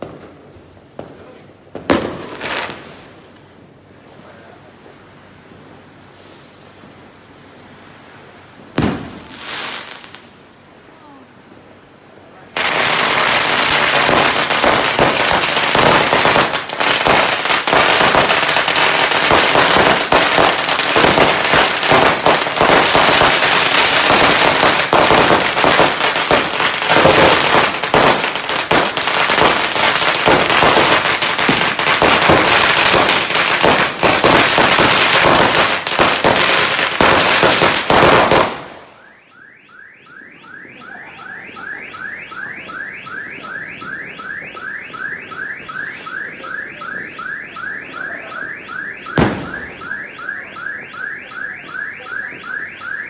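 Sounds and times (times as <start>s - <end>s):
firecrackers crackling: 0.0s - 39.1s, 40.2s - 53.0s.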